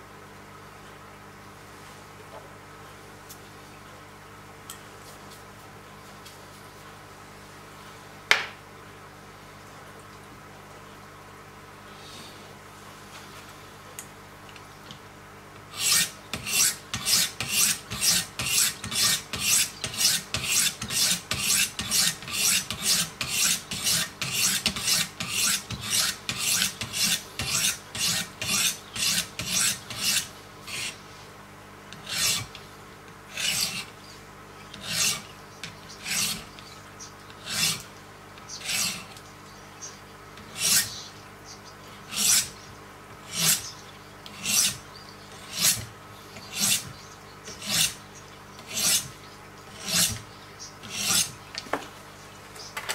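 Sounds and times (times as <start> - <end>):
diamond stones rasping on knife edge: 15.8 - 31.0, 31.9 - 32.6, 33.3 - 33.9, 34.7 - 36.6, 37.4 - 37.9, 38.5 - 39.2, 40.5 - 41.0, 42.1 - 42.5, 45.4 - 46.9, 47.5 - 48.0, 49.7 - 50.2, 50.8 - 51.3.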